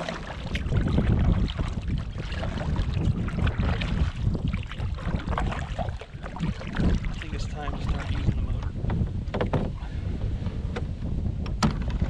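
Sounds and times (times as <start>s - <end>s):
light water noise: 0.0s - 8.8s
wind buffeting microphone: 0.0s - 12.0s.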